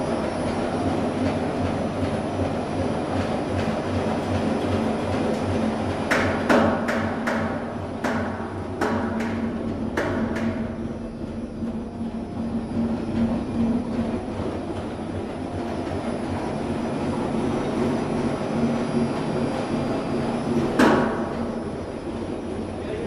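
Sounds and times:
washing machine drum rumbling: 0.0s - 23.0s
sharp knocks: 6.1s - 10.6s.

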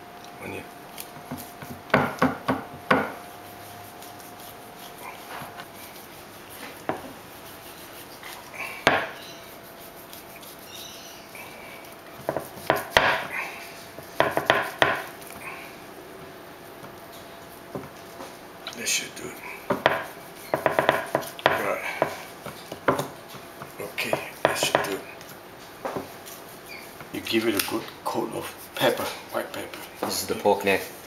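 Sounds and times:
knife scoring pork skin: 1.0s - 11.2s, 11.8s - 15.4s, 19.6s - 25.1s
knife knocking on wooden board: 1.3s - 3.2s, 19.7s - 22.2s.

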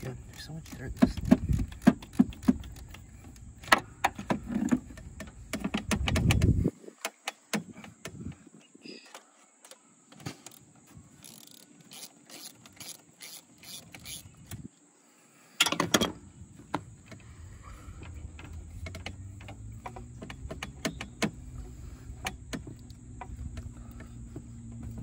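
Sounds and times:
rubber coupler and pipe knocks: 0.8s - 3.0s, 3.6s - 8.3s
ratchet wrench clicking: 11.2s - 14.6s.

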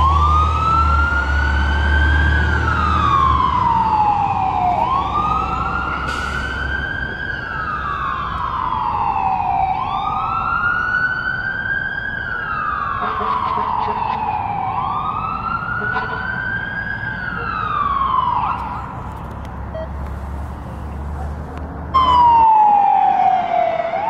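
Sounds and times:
fire engine siren wailing: 0.0s - 19.9s, 21.9s - 24.0s
truck engine rumble: 0.0s - 24.0s.

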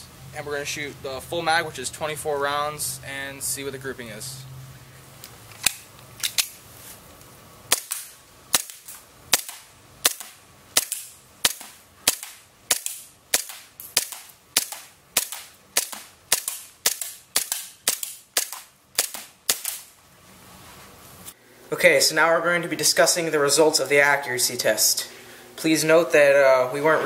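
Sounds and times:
airsoft pistol shots: 7.7s - 19.9s.

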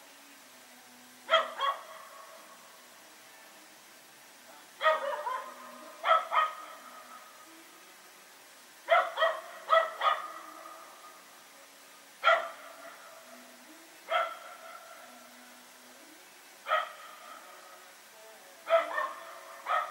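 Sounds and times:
dog barking: 1.3s - 2.0s, 4.8s - 6.8s, 8.9s - 10.5s, 12.2s - 12.6s, 14.1s - 14.5s, 16.7s - 17.0s, 18.7s - 19.9s.

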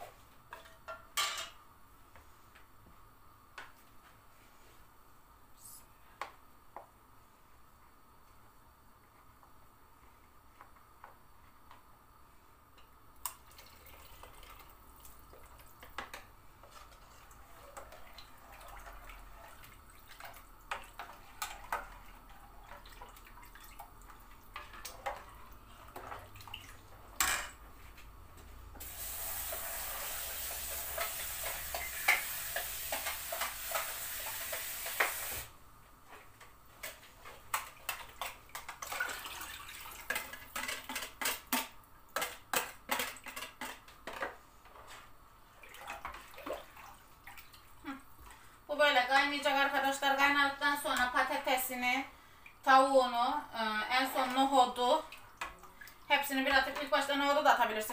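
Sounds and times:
water running: 28.8s - 35.5s, 37.6s - 40.9s, 45.5s - 51.9s.

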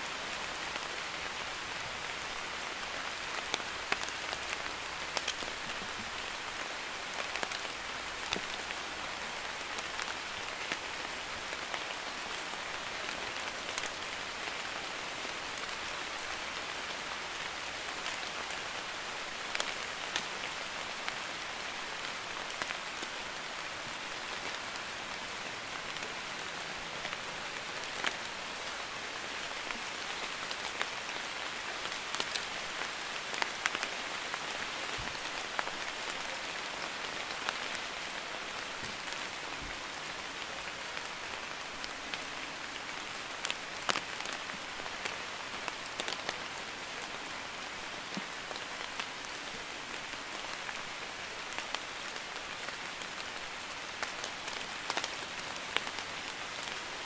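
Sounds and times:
light drizzling rain: 0.0s - 57.0s.

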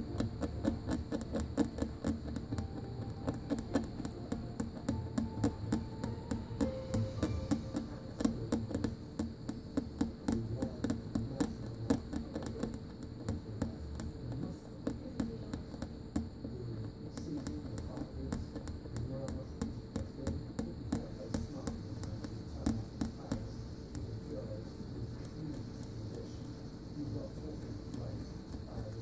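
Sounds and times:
hand tools clicking and tapping: 0.0s - 13.4s
steady hum: 0.0s - 29.0s.

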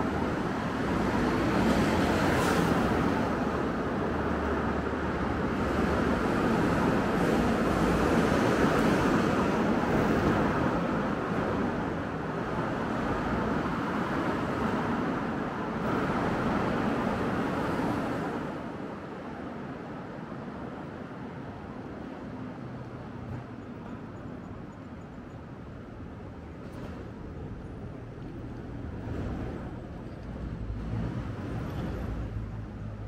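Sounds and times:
passing vehicles rushing: 28.0s - 33.0s.

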